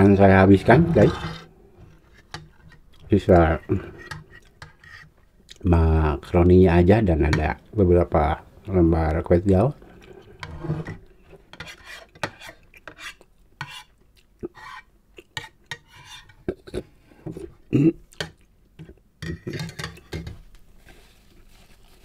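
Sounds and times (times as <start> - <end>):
cutlery clinking against bowl: 18.2 - 20.4.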